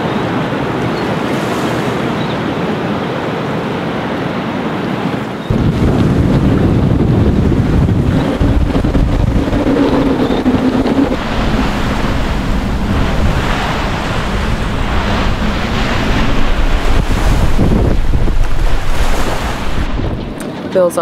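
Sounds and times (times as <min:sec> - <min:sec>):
wind blasting across microphone: 0:00.0 - 0:21.0.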